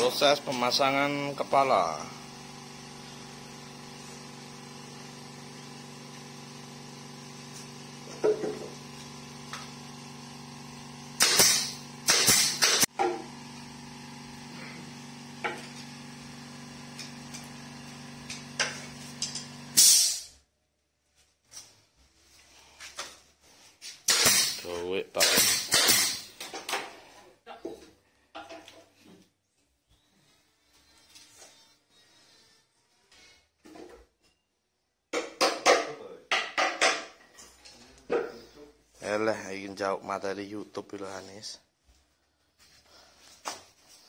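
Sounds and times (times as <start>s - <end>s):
air compressor humming: 0.0s - 20.3s, 24.0s - 26.5s
nail gun firing: 11.2s - 13.1s, 19.2s - 20.3s, 24.0s - 26.4s.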